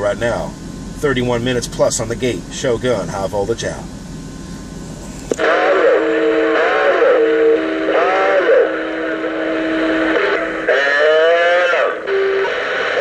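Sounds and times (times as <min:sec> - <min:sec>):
radio static hiss: 0:04.9 - 0:13.0
whistling and warbling radio tones: 0:05.4 - 0:13.0.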